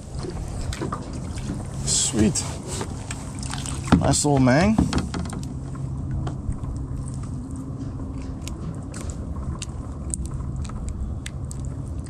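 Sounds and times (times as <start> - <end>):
low steady rumble: 0.0 - 12.0.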